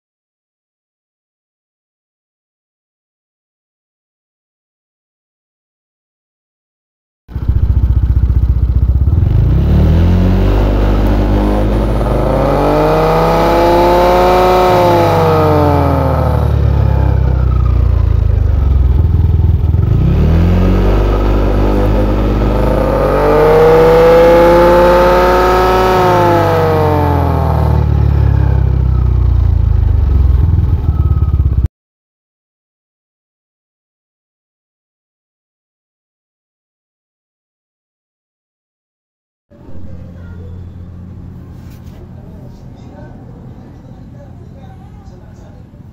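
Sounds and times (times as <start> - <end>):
scooter engine revving: 7.3 - 31.7
transmission whine: 7.3 - 31.7.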